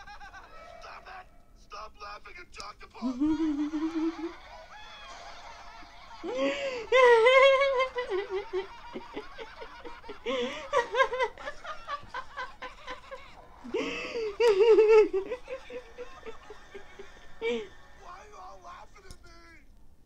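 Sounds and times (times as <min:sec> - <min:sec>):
cartoon characters laughing: 0:03.0 - 0:17.7.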